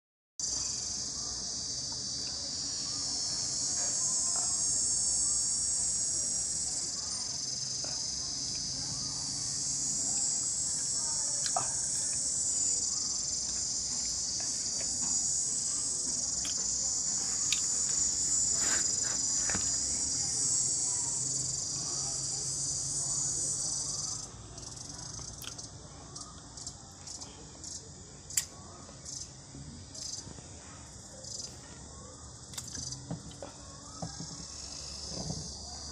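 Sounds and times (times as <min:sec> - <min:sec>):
insect trilling: 0:00.4 - 0:26.8, 0:32.5 - 0:35.9.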